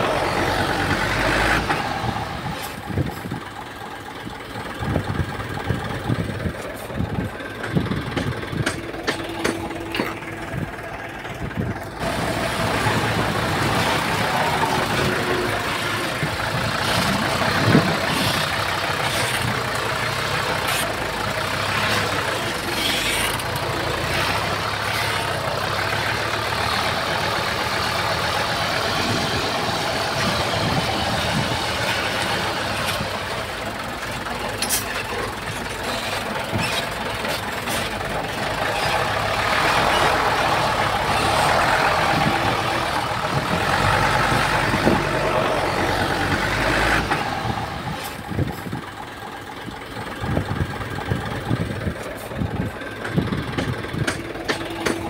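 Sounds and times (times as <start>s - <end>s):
diesel engine running: 0.0s - 55.0s
sharp metallic knocks: 7.6s - 10.4s, 53.0s - 55.0s.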